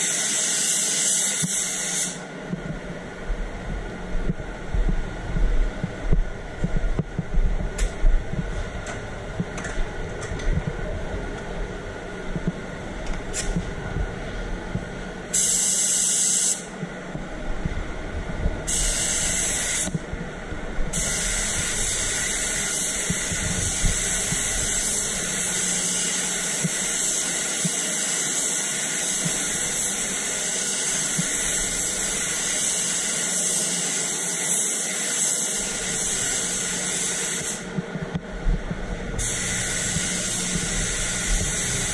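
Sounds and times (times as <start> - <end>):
air spray gun hissing: 0.0 - 2.2, 15.3 - 16.7, 18.7 - 20.0, 20.9 - 37.7, 39.2 - 41.9
low rumble: 2.4 - 15.3, 16.8 - 25.2.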